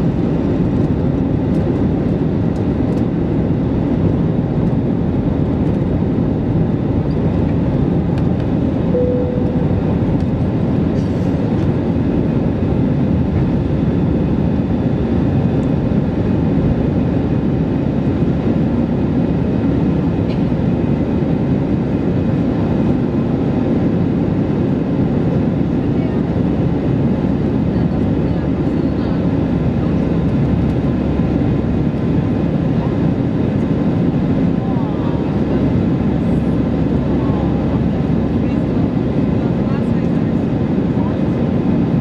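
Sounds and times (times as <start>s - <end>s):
airplane cabin engine drone: 0.0s - 42.0s
brief steady tone: 8.9s - 10.0s.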